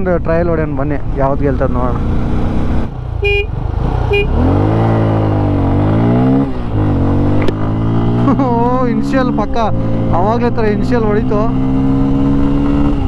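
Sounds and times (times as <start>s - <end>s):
motorcycle engine revving: 0.0s - 13.0s
horn beeps: 3.2s - 4.5s.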